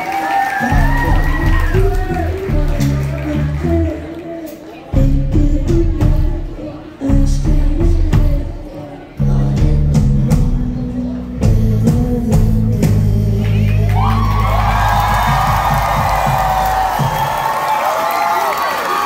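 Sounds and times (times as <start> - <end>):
crowd cheering: 0.0 - 5.0, 13.4 - 19.0
live rock band chords: 0.6 - 17.5.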